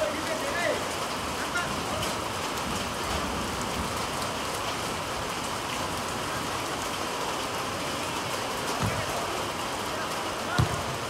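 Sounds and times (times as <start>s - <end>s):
heavy rain falling: 0.0s - 11.0s.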